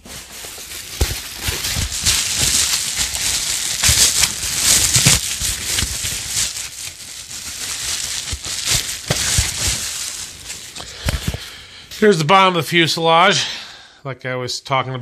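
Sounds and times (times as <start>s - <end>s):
plastic packaging crinkling: 0.0s - 11.6s.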